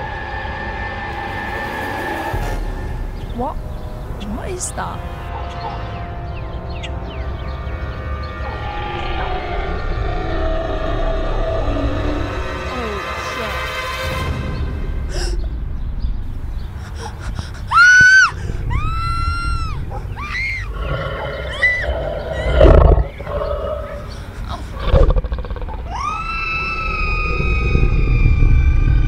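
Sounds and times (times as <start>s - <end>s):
low rumble: 6.3s - 17.7s, 24.0s - 29.0s.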